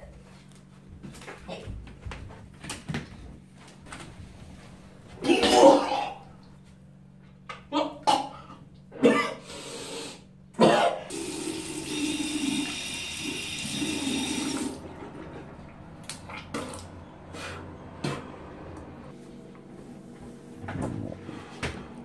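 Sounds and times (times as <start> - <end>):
water running from sink faucet: 11.1 - 14.9.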